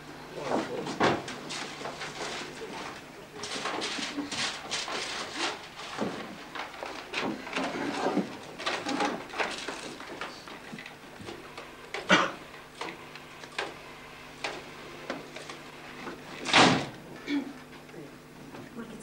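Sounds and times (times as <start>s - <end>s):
newspaper rustling: 1.4s - 10.8s.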